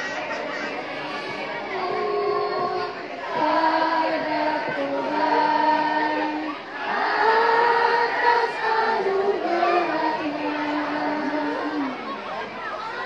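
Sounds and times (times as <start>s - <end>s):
children's choir singing: 0.0s - 13.0s.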